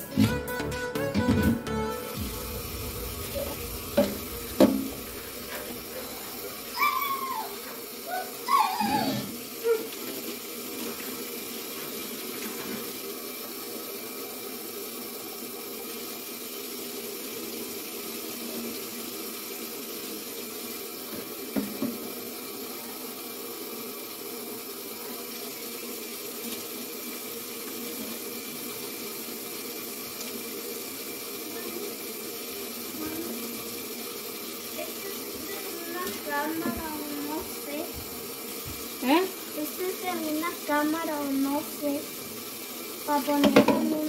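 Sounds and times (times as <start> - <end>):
tap running into a sink: 2.2 - 7.9, 21.0 - 22.4, 33.0 - 44.0.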